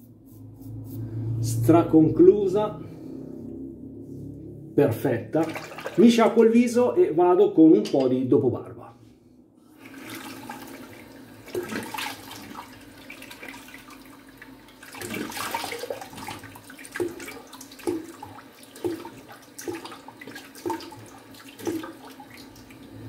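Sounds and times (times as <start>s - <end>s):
water splashing onto face: 5.4s - 6.2s, 11.5s - 14.0s, 14.8s - 22.7s.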